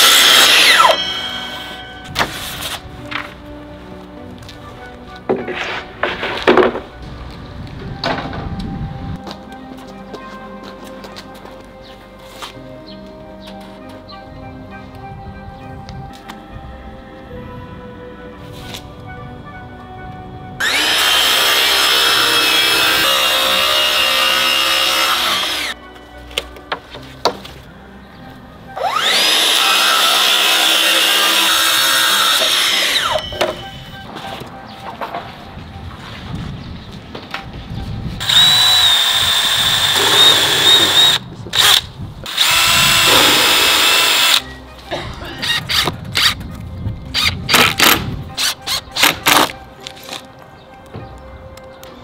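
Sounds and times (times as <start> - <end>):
power tool cutting wood: 0.0 - 1.8, 20.6 - 25.8, 28.8 - 33.3, 38.2 - 44.5.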